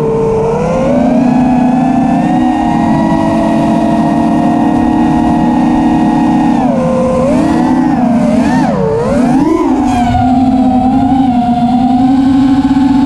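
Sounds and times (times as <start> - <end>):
quadcopter motors whining: 0.0 - 13.0.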